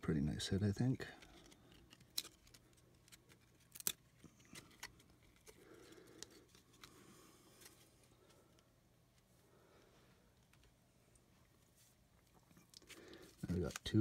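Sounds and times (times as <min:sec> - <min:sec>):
trading cards flipped by hand: 0:01.2 - 0:08.0.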